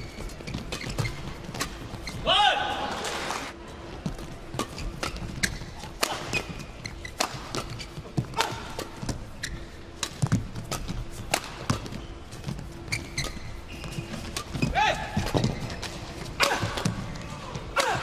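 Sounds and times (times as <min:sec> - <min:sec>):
shoes squeaking on court: 0:00.0 - 0:02.4, 0:04.0 - 0:17.8
rackets striking shuttlecock: 0:04.5 - 0:09.2, 0:10.0 - 0:17.0.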